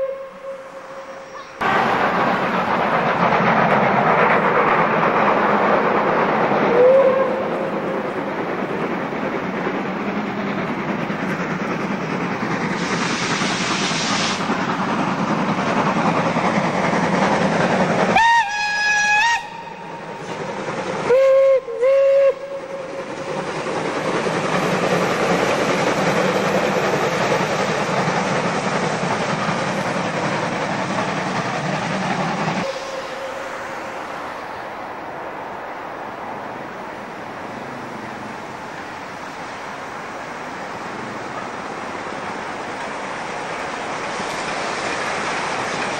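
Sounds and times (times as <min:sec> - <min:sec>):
steam whistle blasts: 0:00.0 - 0:01.4, 0:06.7 - 0:07.4, 0:18.1 - 0:19.9, 0:21.1 - 0:22.9, 0:32.6 - 0:33.8
steam locomotive running past: 0:00.0 - 0:45.9.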